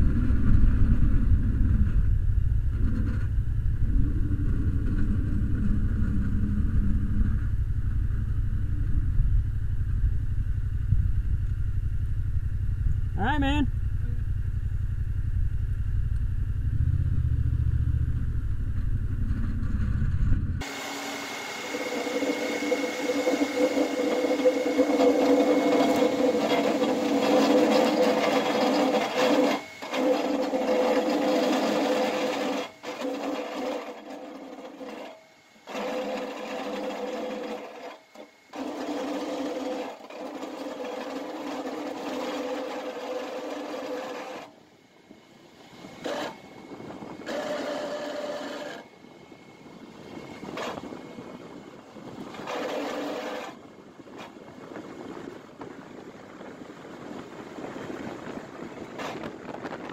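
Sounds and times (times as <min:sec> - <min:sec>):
vehicle engine rumble: 0:00.0 - 0:20.8
wind: 0:00.0 - 0:59.9
training wheels grinding rattle: 0:21.6 - 0:44.6, 0:47.2 - 0:48.9, 0:52.2 - 0:54.4.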